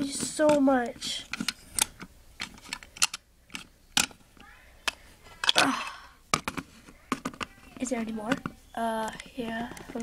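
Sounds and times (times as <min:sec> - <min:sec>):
plastic toys clicking: 0:00.0 - 0:05.7, 0:06.4 - 0:10.0.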